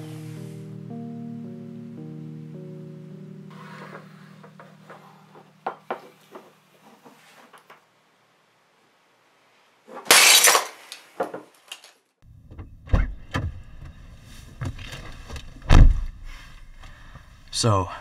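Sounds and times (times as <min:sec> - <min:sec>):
glass shattering: 0:10.1 - 0:10.8.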